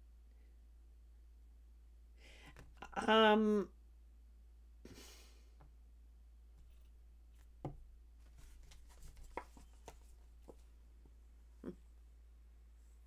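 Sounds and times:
cards being shuffled: 8.2 - 10.7.

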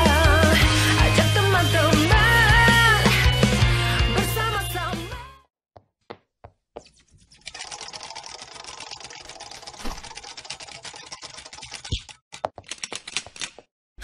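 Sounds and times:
cartoon clicking clatter: 7.5 - 13.7.

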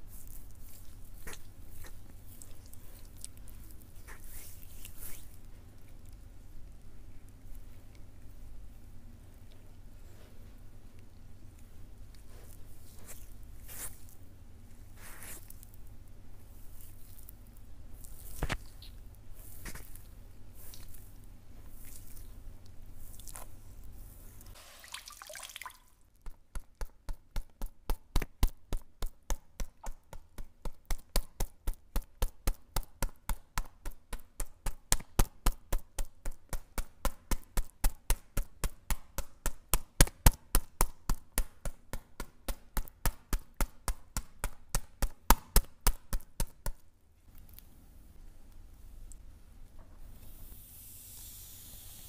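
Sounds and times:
hands rubbing oiled skin: 0.0 - 6.2, 12.0 - 14.2, 14.8 - 15.8, 16.4 - 24.6.

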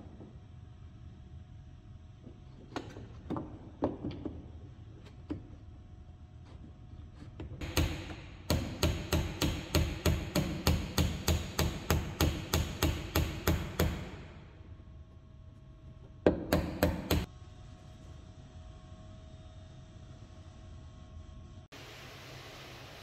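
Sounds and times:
hammer striking wooden block: 7.6 - 14.2, 16.3 - 17.3.

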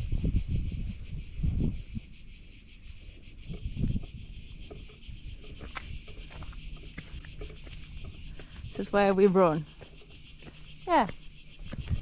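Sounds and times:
low microphone rumbles: 0.0 - 2.2
cicadas buzzing: 0.0 - 12.0.

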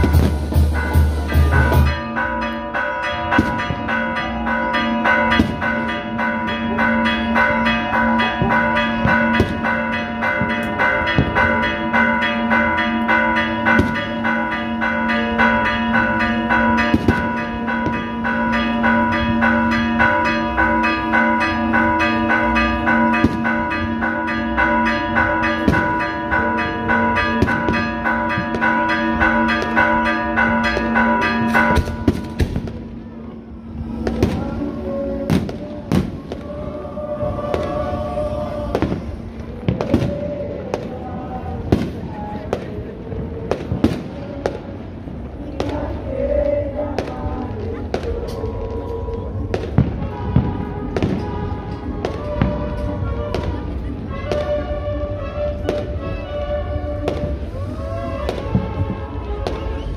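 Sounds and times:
church bells pealing rapidly: 0.0 - 34.4.

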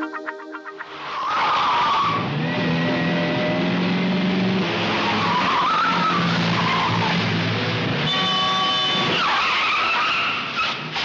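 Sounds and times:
car engine running hard: 1.1 - 9.8
tyres squealing: 8.0 - 10.8.

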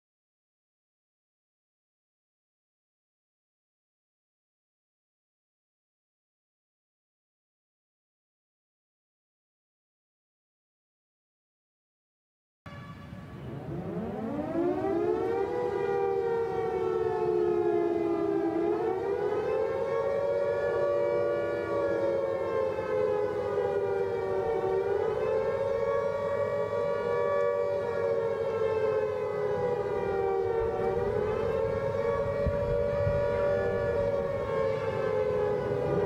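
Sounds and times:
warning siren wailing: 12.7 - 36.0.

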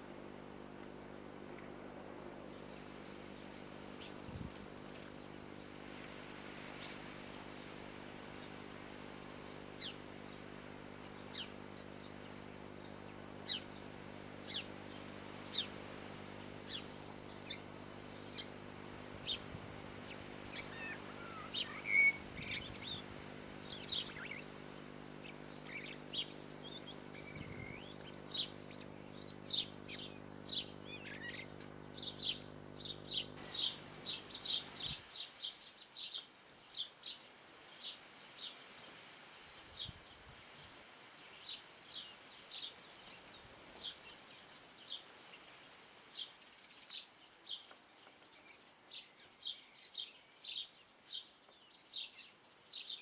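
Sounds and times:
steady electrical hum: 0.0 - 53.0
bird chicks cheeping: 6.5 - 8.6, 9.4 - 40.0.

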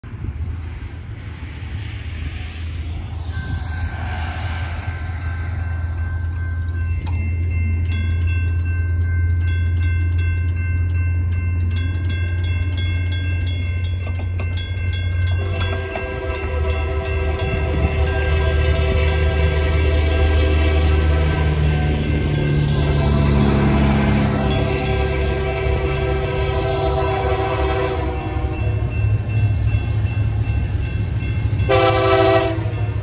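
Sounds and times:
electronic crossing bell: 5.6 - 33.0
mechanical crossing bell striking: 6.4 - 27.5
train horn: 15.5 - 28.9, 31.6 - 33.0.

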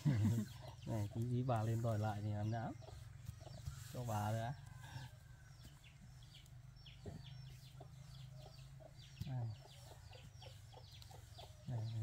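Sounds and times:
baby chicks peeping: 0.0 - 12.0
hen clucking softly: 0.0 - 12.0.

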